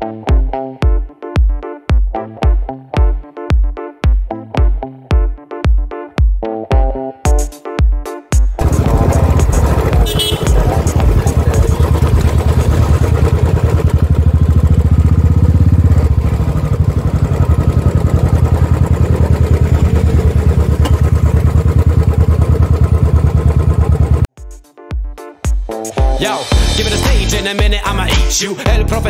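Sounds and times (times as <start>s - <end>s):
motorcycle engine running: 8.6s - 24.3s.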